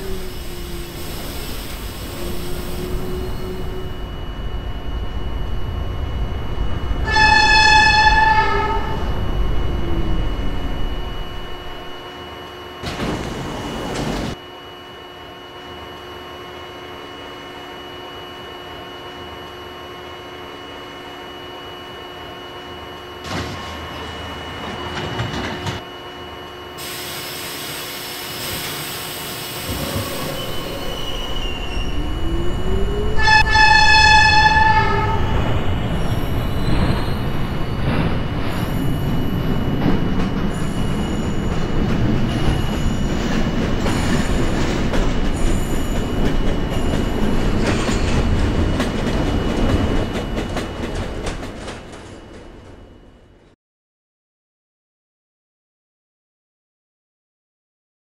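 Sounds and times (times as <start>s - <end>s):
train wheels squealing: 0.0s - 4.1s, 26.8s - 53.2s
subway train rumble: 0.0s - 53.6s
train horn blast: 7.0s - 9.2s, 29.6s - 35.4s.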